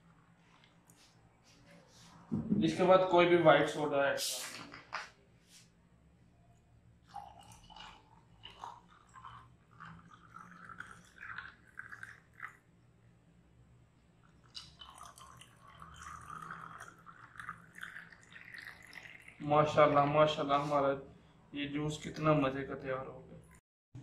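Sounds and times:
soda pouring into glass: 7.0 - 12.7, 14.3 - 19.9
soda fizzing and crackling: 7.1 - 12.6, 14.3 - 19.4.

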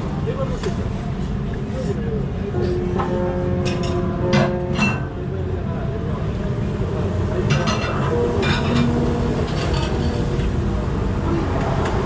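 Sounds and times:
restaurant background rumble: 0.0 - 12.0
utensils clinking against bowl: 2.6 - 5.1, 7.5 - 10.5.

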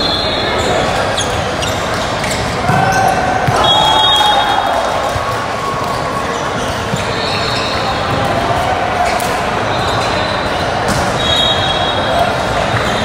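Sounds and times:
crowd hum: 0.0 - 13.0
volleyball being hit and bouncing: 2.6 - 4.4.

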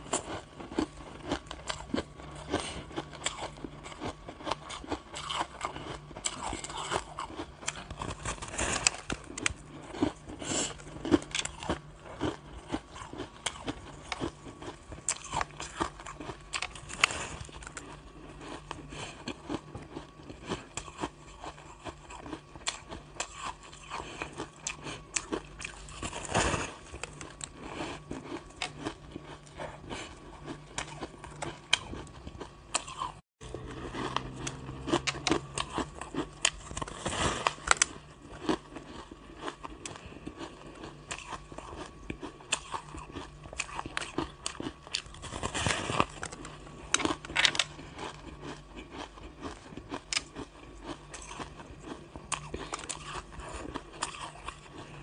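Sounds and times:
crunching shaved ice: 0.0 - 55.0.

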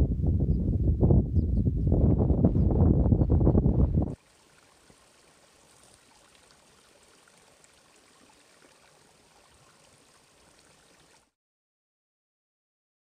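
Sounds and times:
stream trickling: 4.1 - 11.4.

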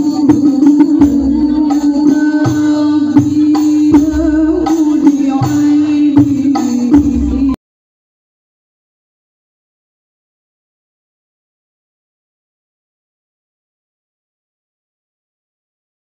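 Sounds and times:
frame drums beating: 0.0 - 7.6.

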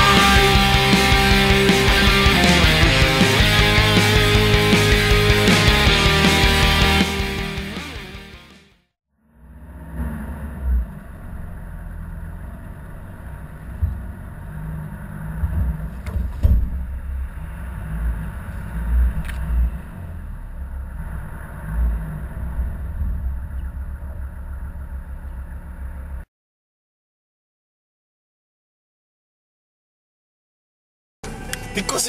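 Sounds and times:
slow vehicle rumble: 9.3 - 26.3
sharp clicks: 19.2 - 19.5.

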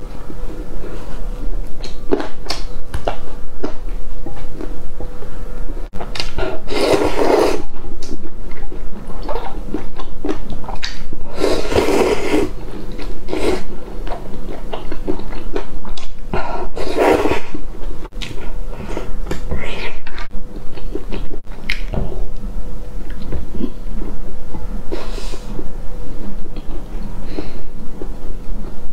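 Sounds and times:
noodles being slurped: 6.6 - 7.7, 11.3 - 13.7
chewing and wet mouth clicks: 7.9 - 11.1.

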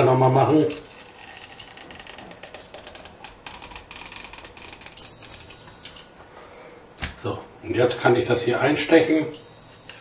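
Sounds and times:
high steady beep: 0.6 - 1.7, 5.0 - 6.1, 9.3 - 10.0.

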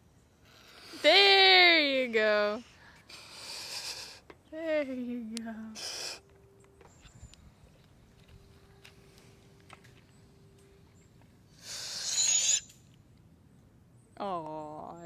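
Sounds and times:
air hissing from balloon: 3.1 - 4.2, 5.8 - 6.2, 11.6 - 12.6.

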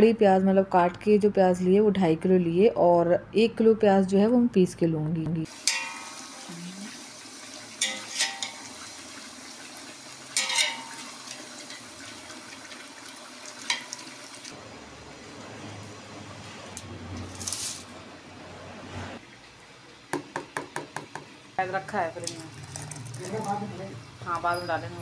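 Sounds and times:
chicken sizzling in oil: 5.5 - 16.0
metal spatula scraping pot: 5.6 - 6.4, 7.8 - 8.7, 10.4 - 11.9.

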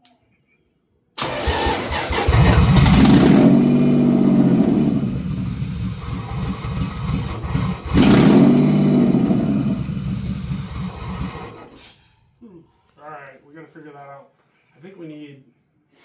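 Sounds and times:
car engine cranking and running rough: 1.2 - 11.7.

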